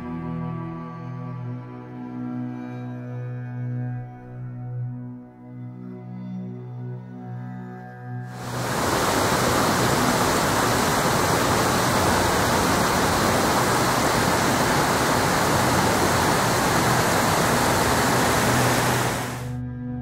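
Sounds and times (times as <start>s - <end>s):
waterfall rushing onto rocks: 8.3s - 19.5s.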